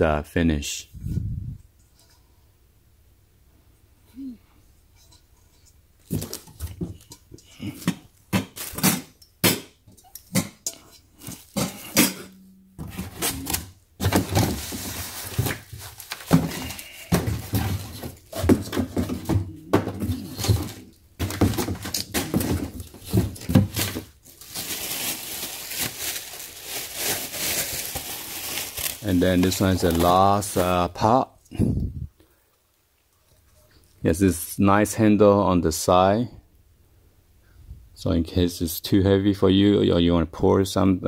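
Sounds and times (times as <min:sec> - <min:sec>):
pots and lids clinking: 0:06.2 - 0:13.6
packaging rustling and crinkling: 0:12.8 - 0:31.1.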